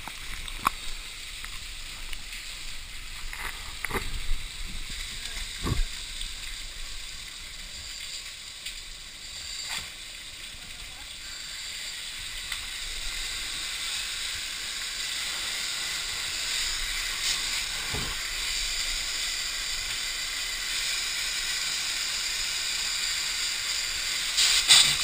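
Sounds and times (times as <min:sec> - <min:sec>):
fire hissing: 0:00.0 - 0:25.0.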